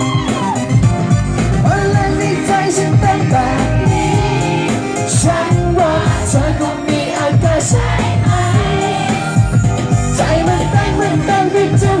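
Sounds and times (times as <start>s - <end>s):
pop song through pa speakers: 0.0s - 12.0s
man singing into microphone: 1.6s - 4.0s, 5.1s - 7.8s, 10.2s - 12.0s.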